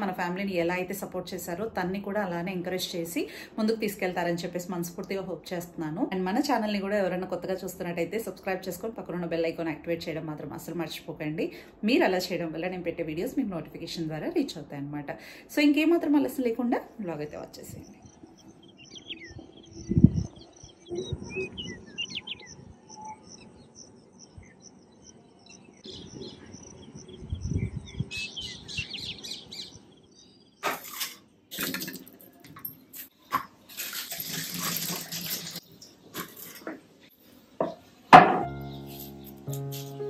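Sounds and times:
birds chirping: 17.2s - 30.8s, 37.0s - 40.0s.

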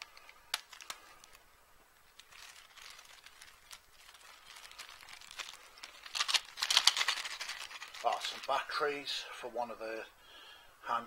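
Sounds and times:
plastic packaging rustling: 0.0s - 8.8s.

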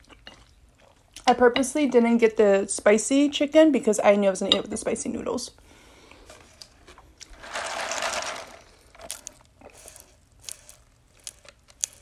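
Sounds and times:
rustling noise: 6.2s - 12.0s
sipping through a straw: 9.0s - 12.0s.

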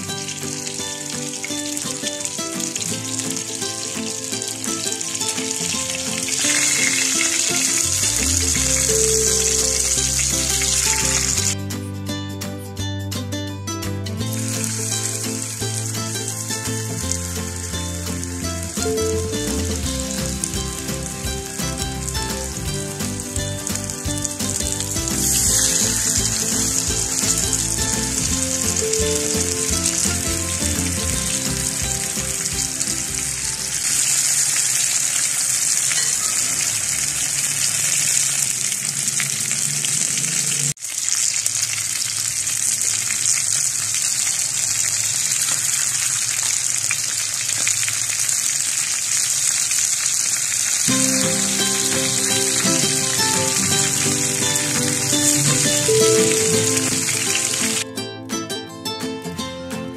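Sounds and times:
fish sizzling in oil: 0.2s - 3.5s, 6.2s - 11.6s, 23.8s - 30.2s, 30.8s - 57.8s.

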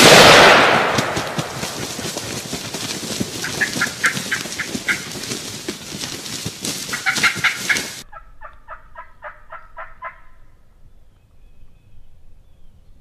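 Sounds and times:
bird rapid rattling call: 1.8s - 8.0s.

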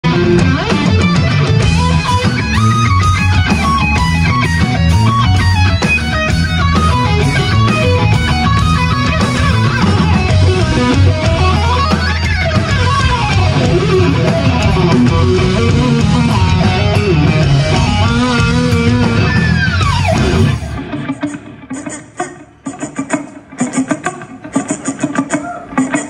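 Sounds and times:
low bass: 0.0s - 20.9s
drum kit: 0.0s - 26.0s
electric guitar lead runs: 0.0s - 26.0s.

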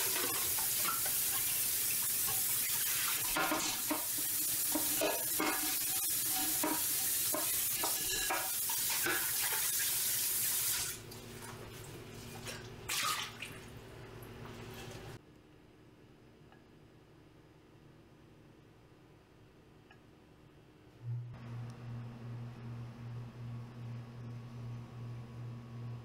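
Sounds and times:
pot clattering: 4.7s - 9.6s.

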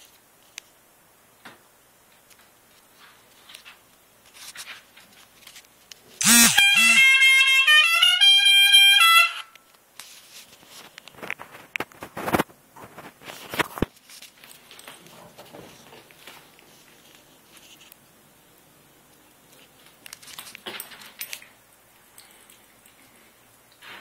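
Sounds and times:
knocks and handling rustle: 1.4s - 6.2s, 9.6s - 18.1s, 19.1s - 24.0s
pitched tone melody: 6.2s - 9.5s.

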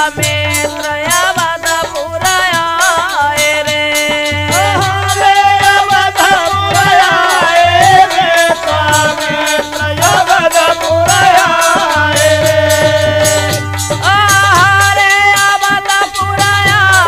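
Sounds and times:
dholak drum beat: 0.0s - 17.0s
jingling percussion: 0.0s - 17.0s.

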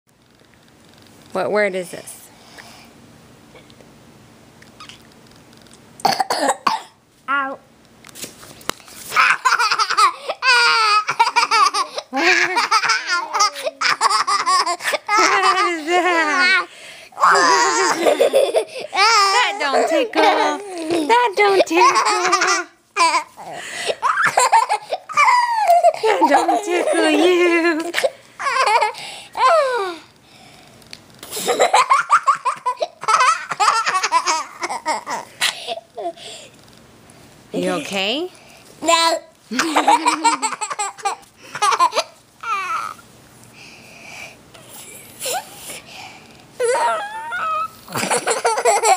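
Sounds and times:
boy laughing: 9.1s - 30.0s, 31.3s - 36.1s, 39.5s - 43.0s, 46.6s - 48.9s.

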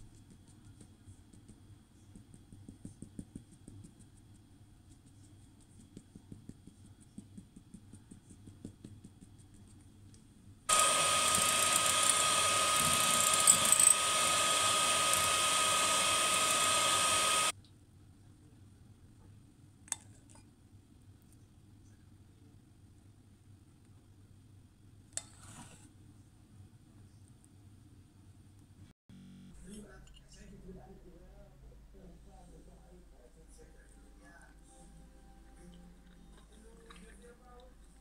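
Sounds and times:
electric hand mixer whine: 10.7s - 17.5s.

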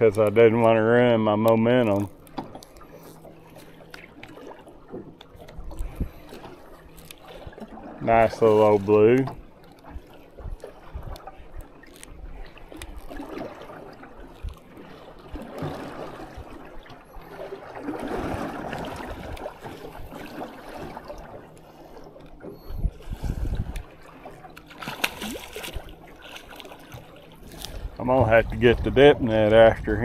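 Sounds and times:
water slapping against boat hull: 0.0s - 30.0s
fish splashing: 9.5s - 28.0s.

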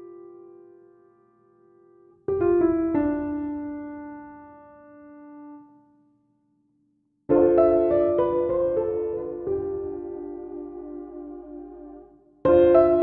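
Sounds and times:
piano music: 0.0s - 5.8s, 7.3s - 13.0s.

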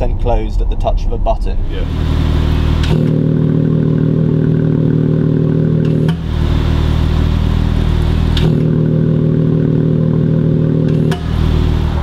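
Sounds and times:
car engine idling: 1.6s - 12.0s
exhaust valve click: 2.7s - 3.2s, 5.8s - 6.4s, 7.8s - 9.0s, 10.8s - 11.5s.

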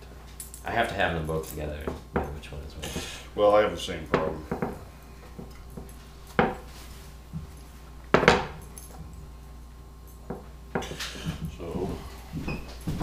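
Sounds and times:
kitchen knocks and clinks: 4.1s - 6.7s, 8.1s - 9.1s.

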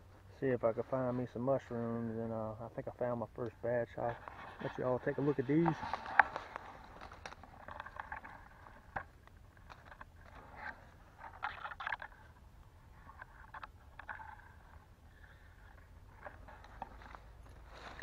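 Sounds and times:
rustling of dry leaves and twigs: 0.0s - 18.0s
scrapes and clicks: 4.0s - 18.0s.

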